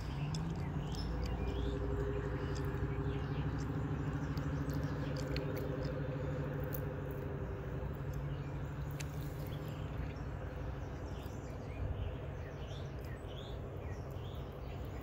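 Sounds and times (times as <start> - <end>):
faint high ticks and chirps: 0.0 - 11.6
motor hum: 0.0 - 15.0.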